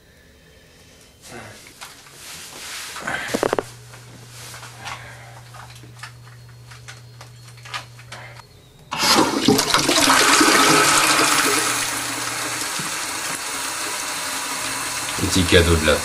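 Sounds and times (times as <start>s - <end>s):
toilet flushing water rush: 8.9s - 16.0s.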